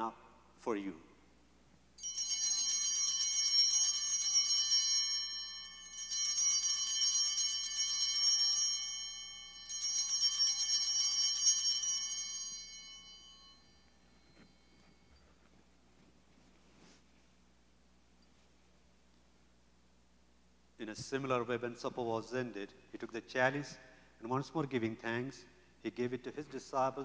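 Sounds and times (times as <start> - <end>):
altar bells shimmering peal: 2.0 - 15.8.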